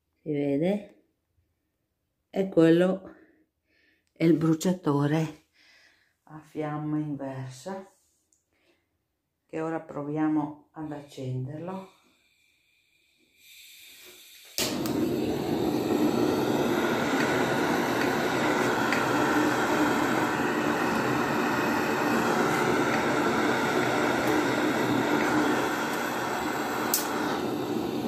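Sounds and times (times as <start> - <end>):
blowtorch flame hissing: 11.6 - 28.0
blowtorch igniter clicking: 13.4 - 28.0.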